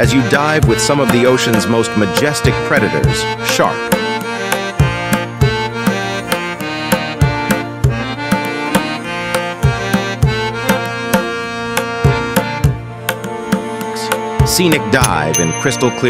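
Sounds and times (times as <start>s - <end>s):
hand drum beat: 0.0s - 16.0s
melody: 14.6s - 16.0s.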